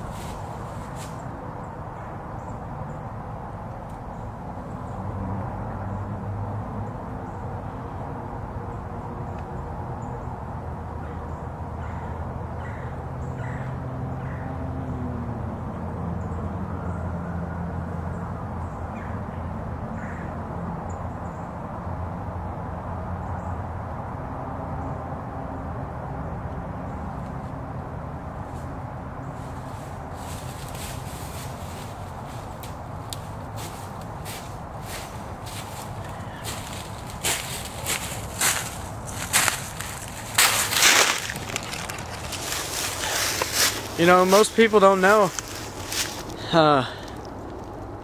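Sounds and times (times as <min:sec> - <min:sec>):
faint bird calls: 0:11.0 - 0:14.5, 0:34.9 - 0:37.1
steady low rumble: 0:27.0 - 0:44.2.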